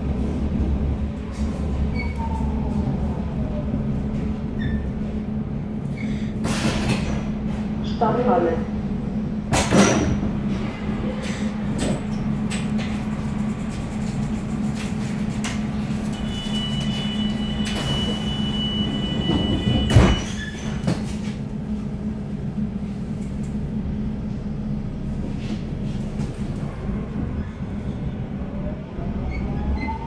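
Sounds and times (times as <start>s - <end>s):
train electrical hum: 0.0s - 29.8s
door closing warning tone: 16.1s - 20.6s.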